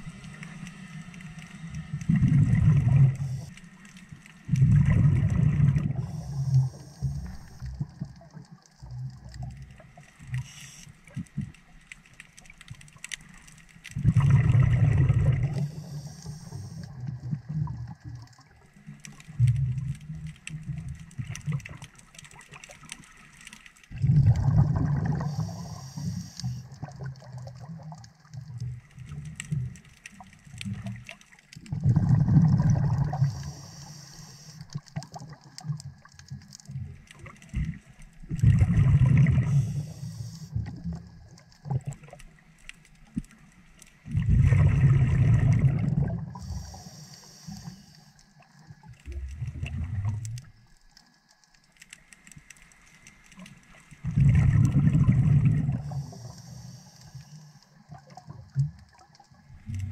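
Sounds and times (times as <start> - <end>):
faint clicking: 0.0 - 59.9
bubbles rumbling: 2.0 - 3.4, 4.4 - 6.4, 14.0 - 15.9, 23.9 - 25.6, 26.6 - 33.6, 34.7 - 42.2, 44.0 - 46.8, 48.7 - 50.7, 53.9 - 56.3, 57.8 - 59.9
diver breathing through regulator: 15.5 - 16.9, 25.1 - 26.7, 31.9 - 34.7, 39.2 - 40.6, 46.4 - 48.2, 54.9 - 57.6
regulator hiss: 15.6 - 16.9, 25.2 - 26.7, 33.2 - 34.8, 39.5 - 40.6, 46.4 - 48.2, 55.8 - 57.6.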